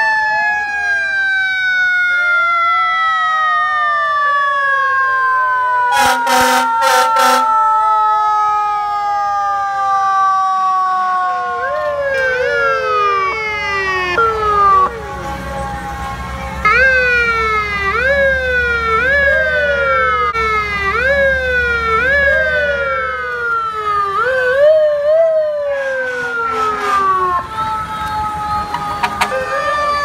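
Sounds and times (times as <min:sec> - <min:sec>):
fire truck sirens sweeping: 0:00.0 - 0:30.0
slow falling siren wail: 0:00.0 - 0:30.0
truck engine rumbling: 0:11.2 - 0:30.0.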